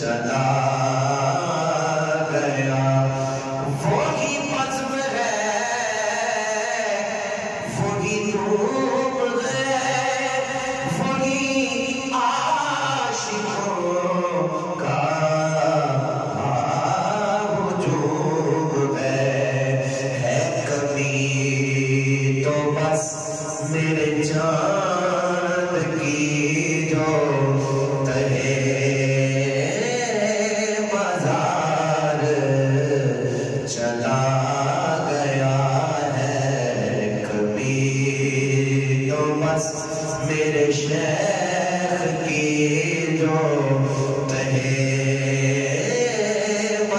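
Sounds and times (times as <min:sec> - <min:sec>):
man singing unaccompanied: 0:00.0 - 0:46.9.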